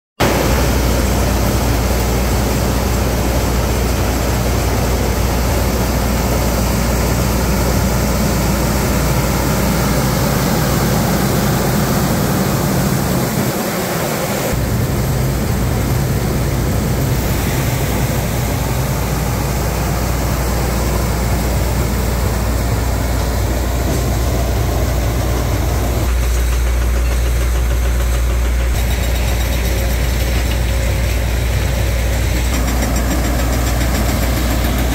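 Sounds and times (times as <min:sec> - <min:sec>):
strong low hum: 0:00.2 - 0:26.2
machine engine and fan drone: 0:00.2 - 0:34.9.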